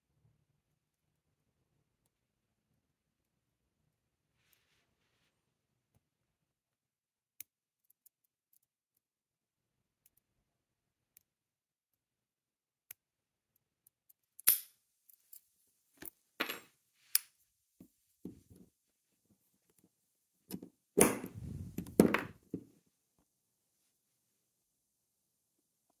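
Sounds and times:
lock and tools clicking: 0:13.9 - 0:15.3.

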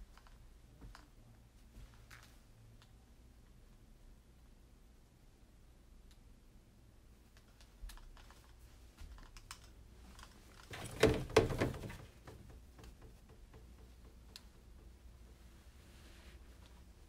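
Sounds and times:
knocks and rustling: 0:10.1 - 0:15.8.

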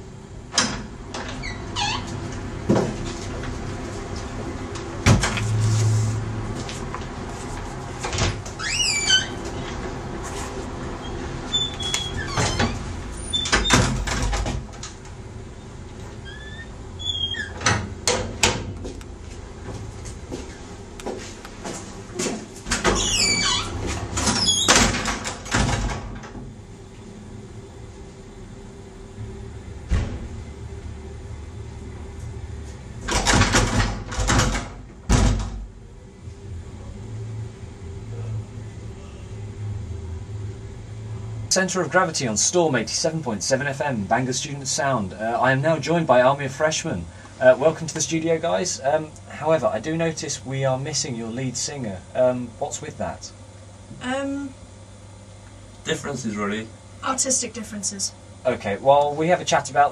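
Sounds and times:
door squeaking: 0:01.2 - 0:02.2, 0:08.5 - 0:09.6, 0:11.0 - 0:14.4, 0:16.2 - 0:17.8, 0:22.7 - 0:25.1
double doors clattering shut: 0:12.0 - 0:14.8, 0:22.7 - 0:26.4, 0:33.0 - 0:35.7
low hum: 0:26.4 - 0:33.2, 0:35.6 - 0:43.0.

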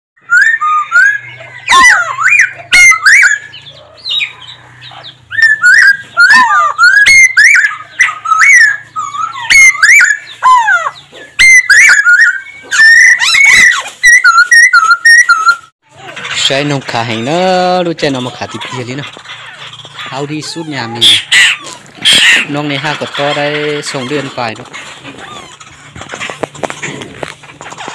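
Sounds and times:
bird whistled song: 0:00.2 - 0:15.7.

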